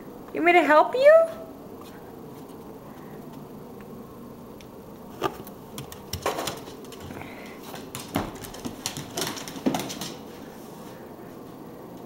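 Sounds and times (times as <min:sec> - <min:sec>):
dog scrabbling at bed on hardwood: 0:05.8 - 0:10.3.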